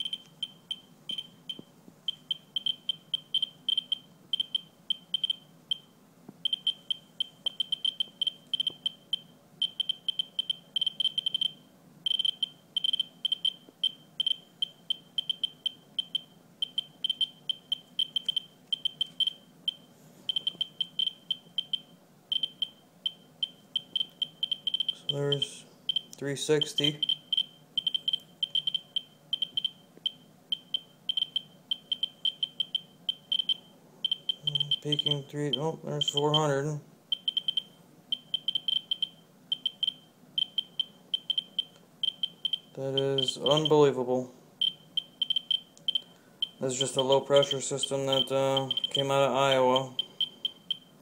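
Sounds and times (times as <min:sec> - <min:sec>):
geiger counter clicks: 0:06.5 - 0:09.0, 0:12.1 - 0:36.4, 0:44.6 - 0:46.9, 0:48.1 - 0:50.8.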